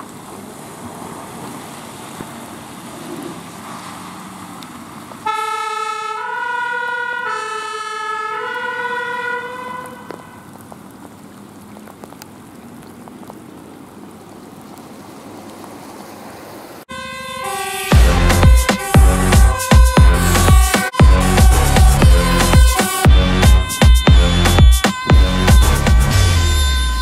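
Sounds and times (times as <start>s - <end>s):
road noise: 0.0s - 27.0s
two-tone siren: 5.2s - 10.5s, 16.9s - 27.0s
electronic music with heavy beats: 17.9s - 27.0s.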